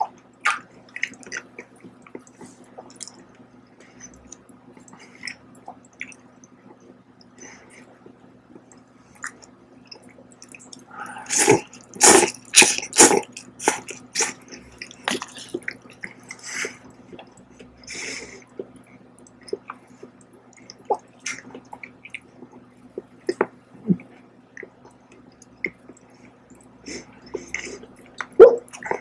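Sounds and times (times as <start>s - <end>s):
chewing: 0.0s - 29.0s
noodles being slurped: 10.6s - 16.8s.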